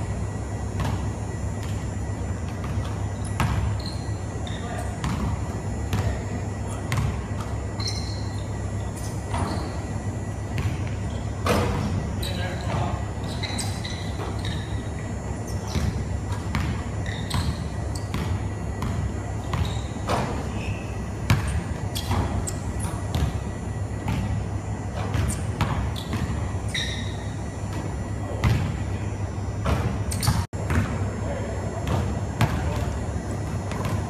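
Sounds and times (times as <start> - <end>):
sneaker squeaks: 0.5 - 28.9, 29.6 - 34.0
basketball bouncing on wooden floor: 2.6 - 3.7, 6.9 - 7.5, 10.6 - 11.8, 15.8 - 20.3, 28.4 - 28.7.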